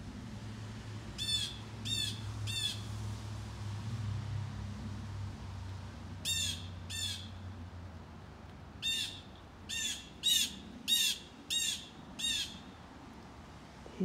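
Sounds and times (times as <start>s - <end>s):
blue jay harsh alarm calls: 1.2s - 2.8s, 6.2s - 7.4s, 8.8s - 12.7s.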